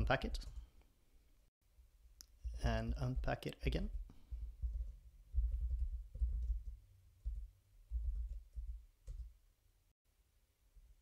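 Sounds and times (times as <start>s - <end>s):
typing on computer keyboard: 4.7s - 7.4s, 8.0s - 9.3s.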